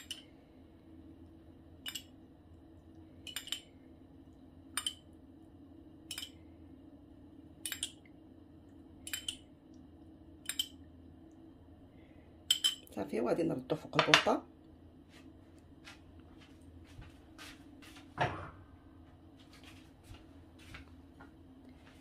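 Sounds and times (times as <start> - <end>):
spoon clinking on ceramic bowl: 12.5 - 12.9.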